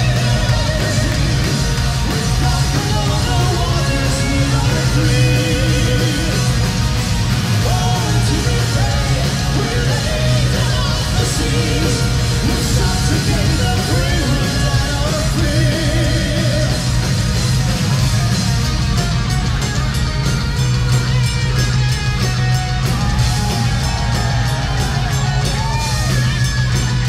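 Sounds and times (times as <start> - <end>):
person singing: 0.0 - 6.6
live metal band playing: 0.0 - 27.0.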